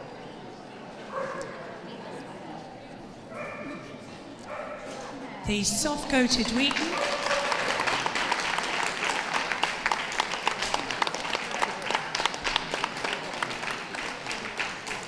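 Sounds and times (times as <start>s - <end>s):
audience applauding: 5.6s - 15.0s.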